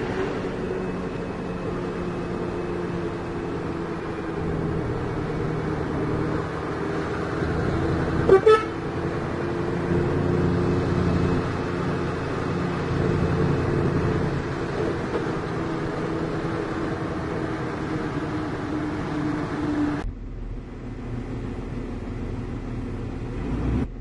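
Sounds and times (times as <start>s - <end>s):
vehicle engine running: 0.0s - 24.0s
horn toots: 8.2s - 8.9s.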